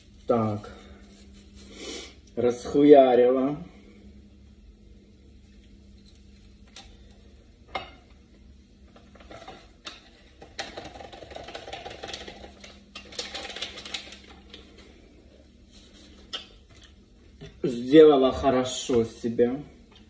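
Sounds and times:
paper packet rustling: 10.6s - 14.9s.

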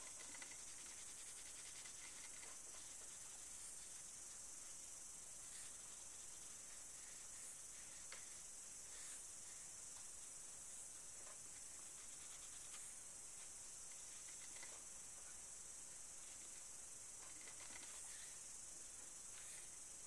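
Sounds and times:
crayon scratching on paper: 0.0s - 4.0s
steady hiss: 0.0s - 20.0s.

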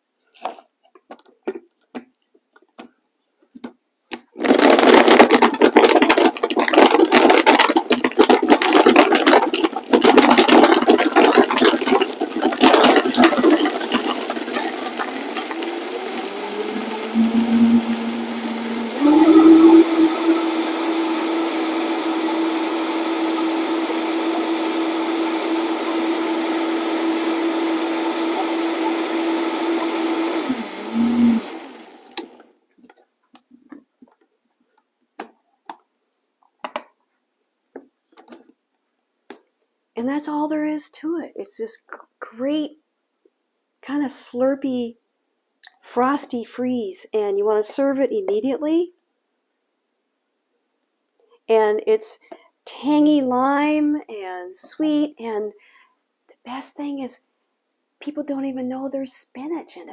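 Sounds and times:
blender crushing ice: 4.2s - 32.5s
blender motor whirring: 4.4s - 32.5s.

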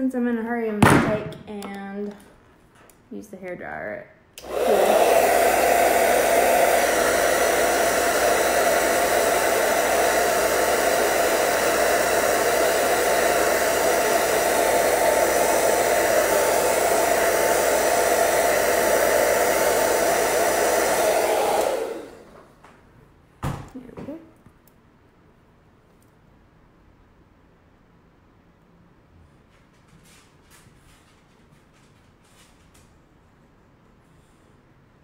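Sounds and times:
hair dryer blowing: 4.4s - 22.6s.

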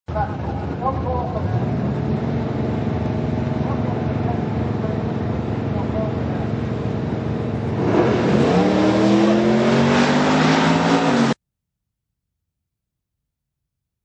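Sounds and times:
race car engine accelerating: 1.2s - 11.4s.

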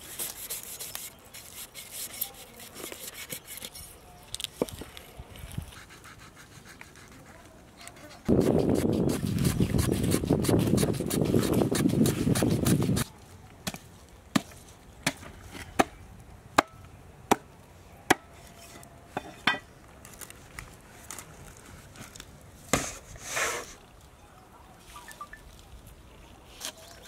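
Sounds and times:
short scrape: 22.7s - 23.8s.

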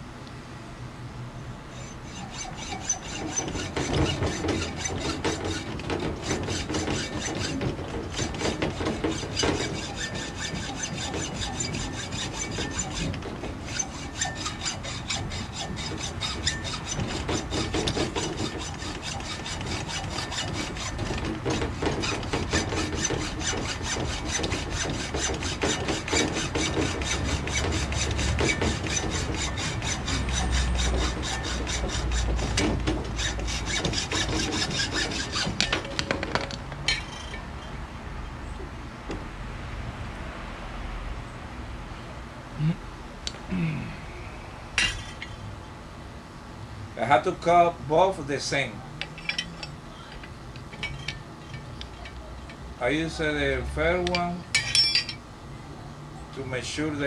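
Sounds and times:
hacksaw cutting metal tube: 1.7s - 37.5s, 49.0s - 52.6s, 54.0s - 55.2s.

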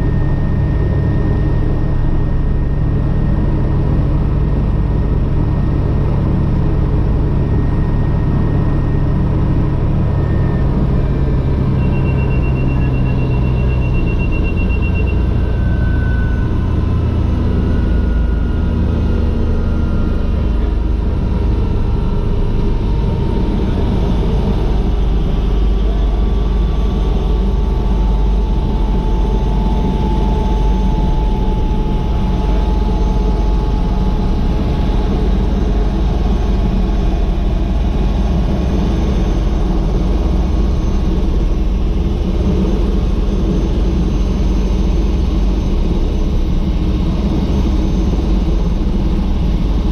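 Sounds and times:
falling engine whine: 0.0s - 49.9s
helicopter engine and rotor rumble: 0.0s - 49.9s
rapid beeping warning tone: 11.7s - 16.4s.

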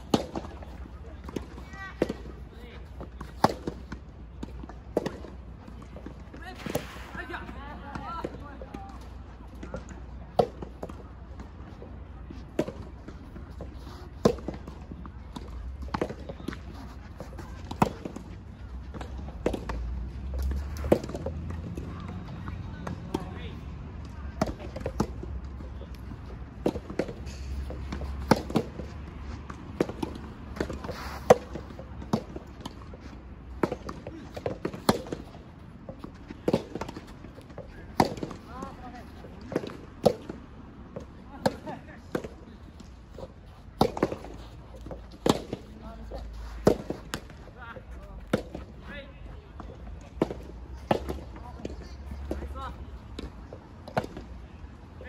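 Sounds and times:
rackets striking tennis ball: 0.0s - 8.8s, 9.5s - 23.5s, 24.2s - 48.8s, 49.6s - 54.4s
faint hits from other courts: 0.0s - 47.4s
ball struck by rackets: 26.0s - 32.8s, 33.5s - 35.4s, 43.8s - 45.8s, 46.6s - 47.4s.

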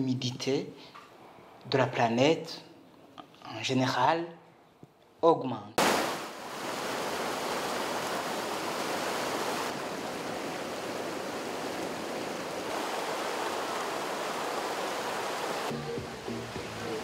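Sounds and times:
river rushing over rocks: 5.9s - 17.0s.

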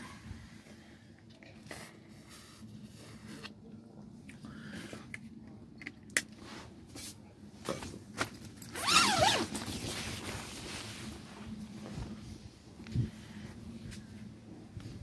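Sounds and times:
clothing rustle: 6.4s - 14.4s.

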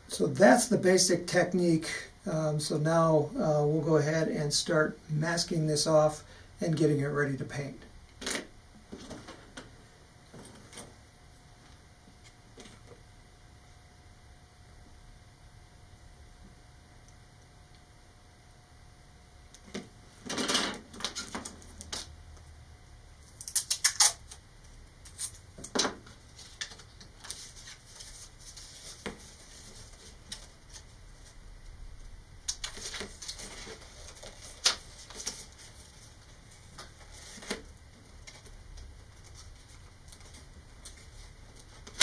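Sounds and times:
tape and tube handling rustles: 25.0s - 31.4s, 32.5s - 42.0s.

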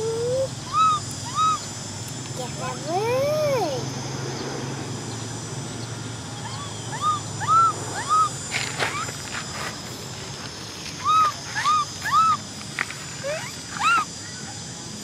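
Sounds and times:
baby monkey crying: 0.0s - 1.7s, 6.4s - 9.2s, 11.0s - 12.5s, 13.2s - 14.1s.

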